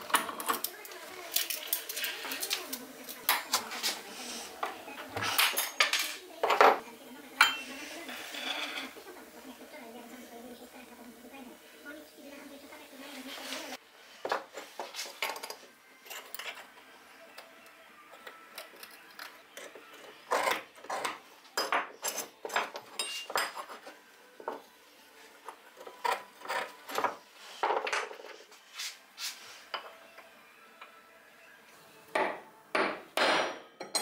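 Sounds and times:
metal scratching on steel bar: 0:08.1 - 0:09.0.

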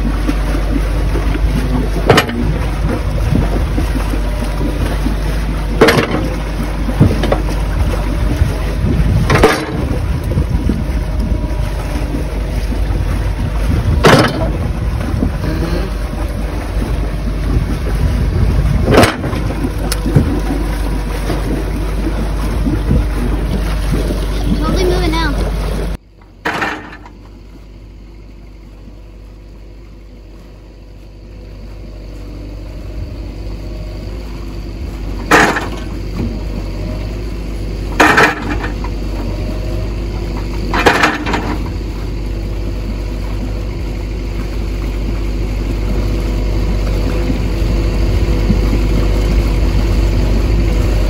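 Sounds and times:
wind buffeting microphone: 0:00.4 - 0:26.0, 0:41.6 - 0:51.0
sharp knocks: 0:02.0 - 0:02.6, 0:05.8 - 0:06.4, 0:09.3 - 0:09.9, 0:14.0 - 0:14.6, 0:18.9 - 0:20.4, 0:35.3 - 0:35.9.

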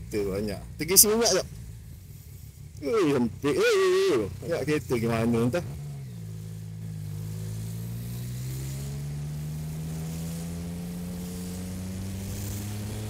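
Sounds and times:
motorcycle engine pulling: 0:02.8 - 0:13.0.

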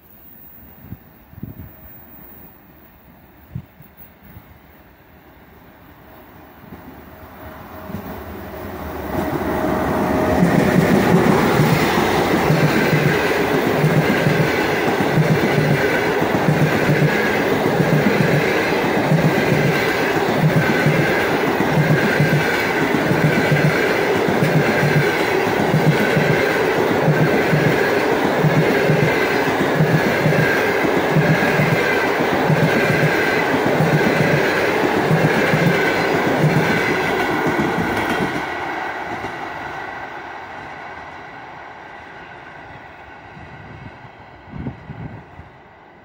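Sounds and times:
passenger train rumbling past: 0:00.0 - 0:46.0.

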